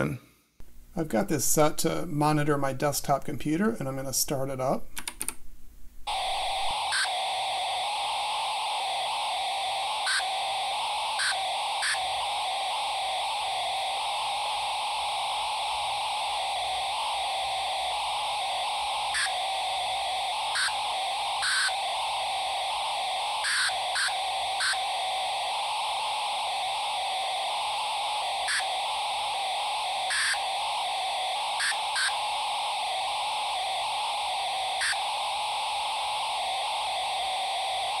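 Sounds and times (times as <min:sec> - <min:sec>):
static hiss from small speaker: 0:00.0 - 0:38.0.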